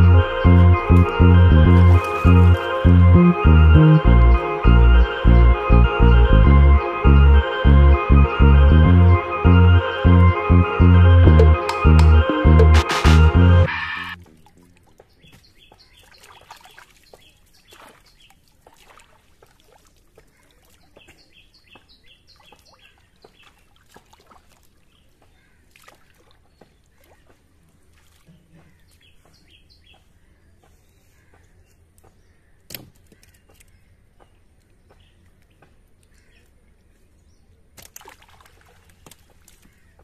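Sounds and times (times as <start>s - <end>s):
water splashing and dripping: 0.0s - 4.2s, 14.2s - 29.3s, 37.6s - 40.0s
birds chirping: 14.9s - 18.4s.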